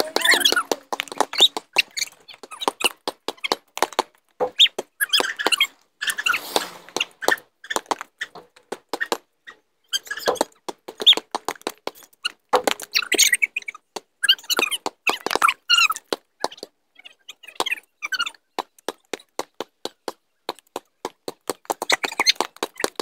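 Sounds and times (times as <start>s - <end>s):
sneakers squeaking: 0.0s - 3.6s, 4.4s - 11.3s, 12.2s - 16.7s
basketball bouncing on pavement: 0.0s - 9.3s, 10.0s - 16.7s.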